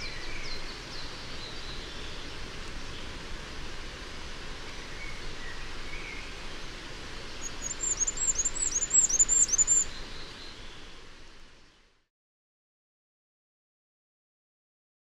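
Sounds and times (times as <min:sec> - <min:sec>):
outdoor background hiss: 0:00.0 - 0:12.1
bird singing high thin notes: 0:07.4 - 0:09.9.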